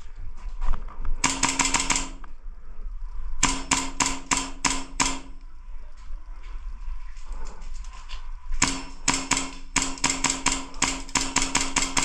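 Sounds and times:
airsoft gun firing: 1.2s - 2.2s, 3.4s - 5.4s, 8.6s - 12.0s.

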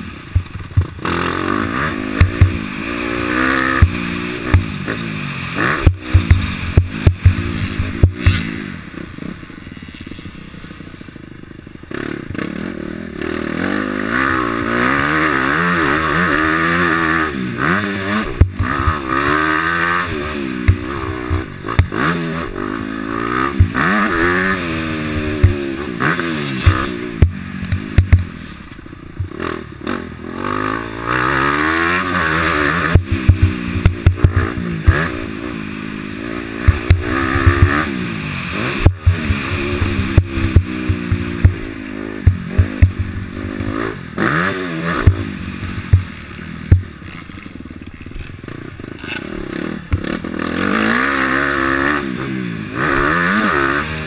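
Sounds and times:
dirt bike engine revving: 0.0s - 54.0s
knocks and clatter over bumps: 0.3s - 2.9s, 3.7s - 9.4s, 18.2s - 22.6s, 23.5s - 29.6s, 32.8s - 35.3s, 36.6s - 38.0s, 38.6s - 50.3s.

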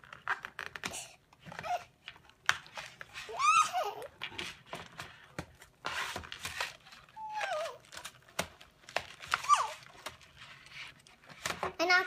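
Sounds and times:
child squeaky voice sounds: 3.3s - 4.1s, 9.4s - 9.8s
toy packaging crinkling: 6.0s - 11.7s.

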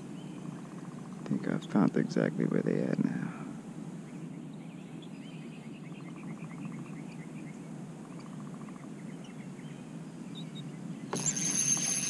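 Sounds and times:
birds chirping: 0.0s - 12.0s
low background noise: 0.0s - 12.0s
bird rattling trill: 11.1s - 12.0s.

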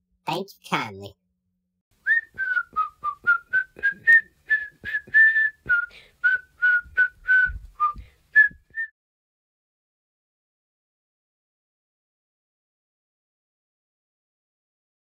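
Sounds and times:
person whistling a tune: 2.0s - 8.9s.

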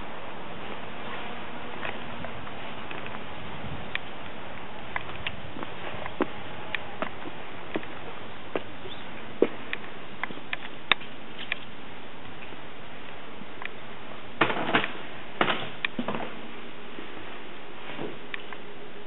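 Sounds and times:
footsteps: 0.6s - 11.7s.

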